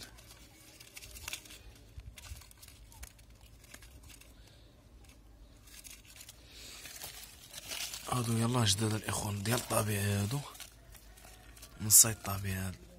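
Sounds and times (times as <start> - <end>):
faint rustling: 0.0 - 12.9.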